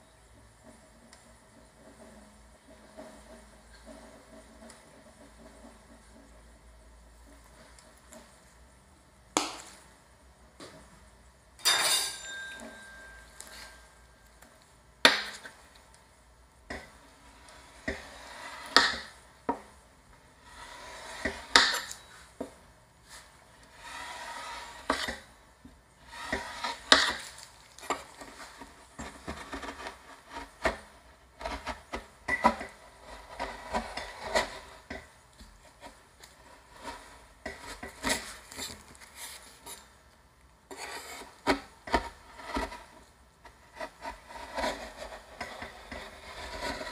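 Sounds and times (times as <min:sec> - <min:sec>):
metallic ring: 0:11.6 - 0:14.1
spatula scraping cold plate: 0:16.7 - 0:19.7, 0:20.3 - 0:22.4, 0:23.1 - 0:25.4, 0:26.0 - 0:35.1, 0:35.7 - 0:39.8, 0:40.7 - 0:46.9.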